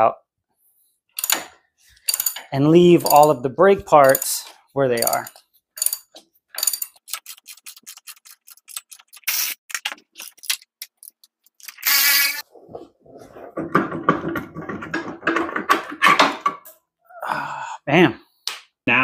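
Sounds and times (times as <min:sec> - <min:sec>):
ratchet clicks: 0:01.2 - 0:01.5, 0:02.1 - 0:03.4, 0:04.0 - 0:04.4, 0:05.0 - 0:07.2, 0:11.6 - 0:12.4
metal rattling and scraping: 0:01.2 - 0:09.1
ratchet motor whir: 0:11.8 - 0:12.4.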